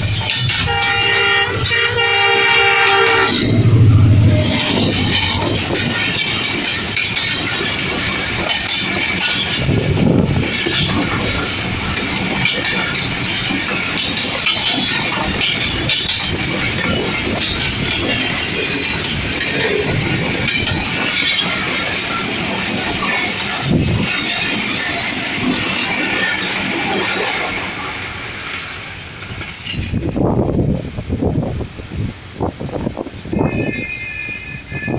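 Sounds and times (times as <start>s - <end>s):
wheels clattering over rail joints: 0.0s - 30.6s
train wheels rumbling on rails: 0.0s - 34.9s
low thumps: 3.1s - 6.2s.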